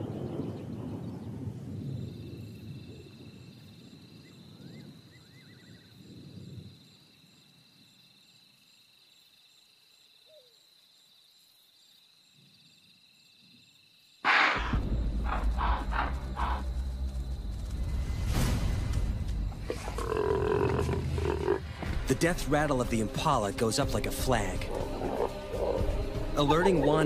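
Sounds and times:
thunder rumble: 0.0s - 5.1s, 14.6s - 27.0s
crickets trilling: 0.0s - 22.0s, 22.7s - 27.0s.

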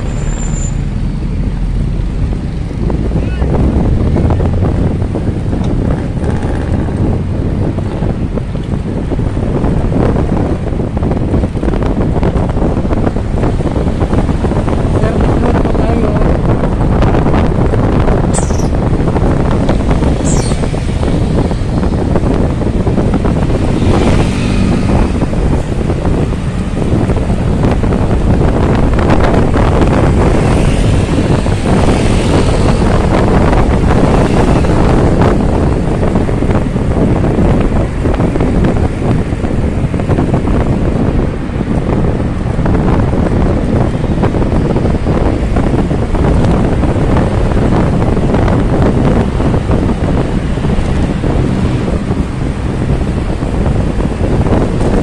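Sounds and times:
road and traffic noise: 0.0s - 55.0s
wind rushing over microphone: 0.0s - 55.0s.

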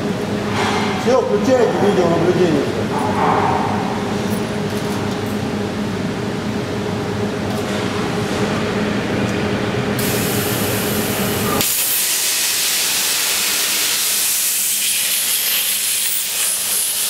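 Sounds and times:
machine hum: 0.0s - 15.2s
plasma cutter hissing: 10.0s - 17.0s.

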